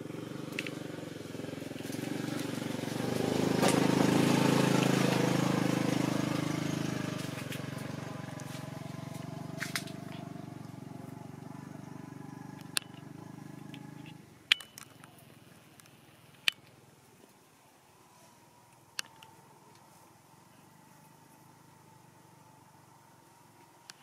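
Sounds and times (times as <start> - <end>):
vehicle engine running: 0.0 - 17.0, 18.5 - 24.0
sharp clicks: 13.6 - 15.2, 18.7 - 19.8.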